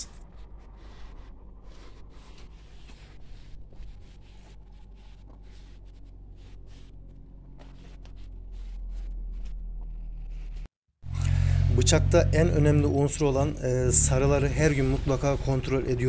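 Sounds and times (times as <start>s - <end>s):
scuffing footsteps: 1.7s - 10.7s.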